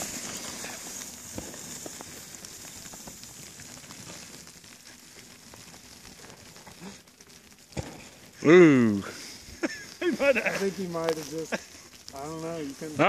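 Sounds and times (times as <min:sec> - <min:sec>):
skis hissing over snow: 0:00.0 - 0:13.0.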